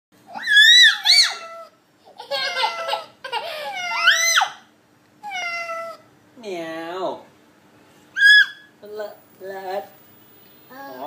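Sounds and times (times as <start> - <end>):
toddler squealing: 0.3 - 1.7, 3.6 - 4.7, 8.2 - 8.7.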